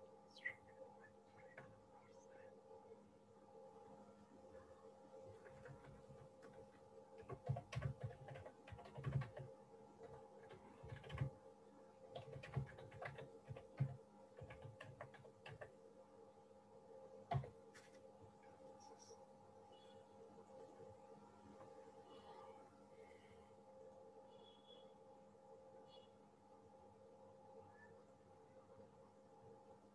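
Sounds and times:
faint steady hum: 0.0s - 29.9s
typing on computer keyboard: 5.4s - 11.4s, 12.1s - 15.7s, 17.3s - 17.6s.

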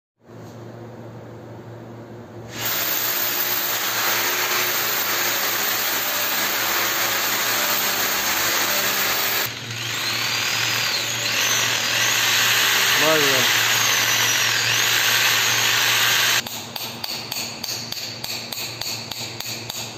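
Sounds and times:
electric drill drilling into concrete: 2.5s - 16.4s.

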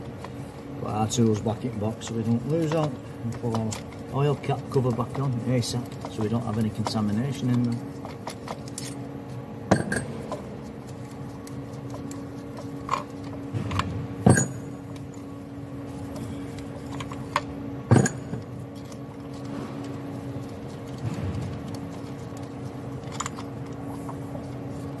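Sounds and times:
steady hum: 0.0s - 25.0s
metal tools clinking and knocking: 9.7s - 10.4s, 14.3s - 14.7s, 16.9s - 19.0s.

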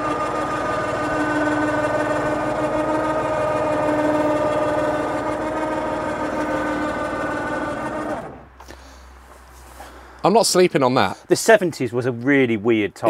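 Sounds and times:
small electric motor humming: 0.0s - 8.4s.

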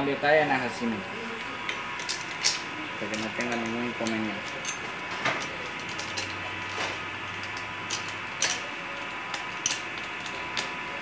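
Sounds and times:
chain links clinking on metal: 2.0s - 6.4s.

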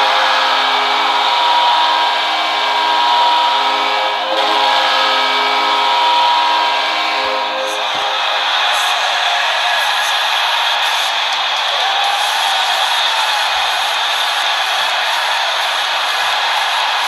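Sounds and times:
goal horn blast: 0.0s - 8.7s
crowd cheering: 0.0s - 17.0s.

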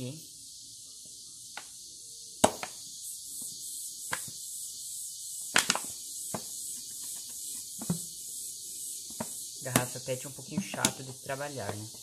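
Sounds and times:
steady high hiss: 0.0s - 12.0s
plastic bottle clicks and crackles: 5.6s - 5.9s.

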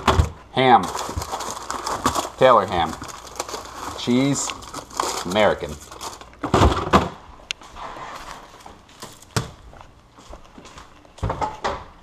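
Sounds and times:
footsteps: 7.2s - 11.6s.

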